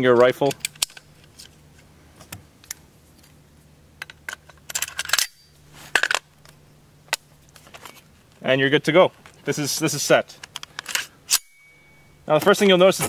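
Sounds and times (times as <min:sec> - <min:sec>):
rifle parts clicking and clattering: 0:00.1 - 0:01.6, 0:04.0 - 0:08.1, 0:10.3 - 0:11.7.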